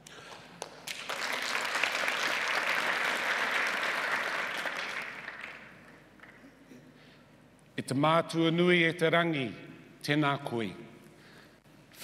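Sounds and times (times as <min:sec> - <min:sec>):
audience applauding: 0:00.3 - 0:06.4.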